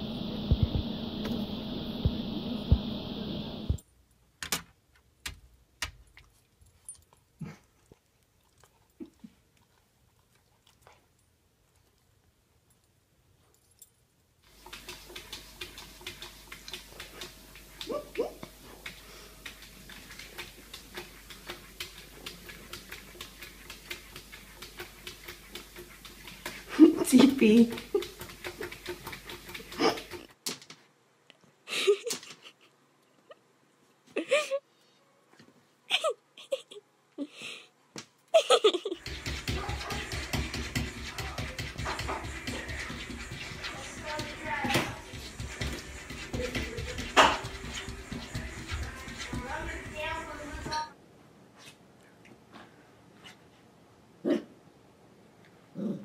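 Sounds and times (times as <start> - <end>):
paws tapping on glass: 27.7 - 30.3, 39.0 - 50.8
person laughing quietly: 31.6 - 34.7, 35.9 - 37.7, 38.3 - 39.0.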